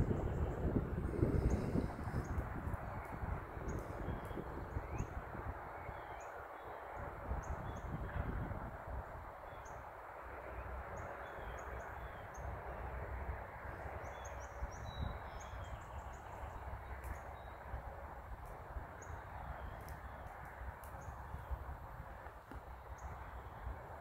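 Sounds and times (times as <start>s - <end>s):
small birds chirping: 0.0s - 5.2s, 18.4s - 21.7s
low unsteady rumble: 0.0s - 6.0s, 6.8s - 24.0s.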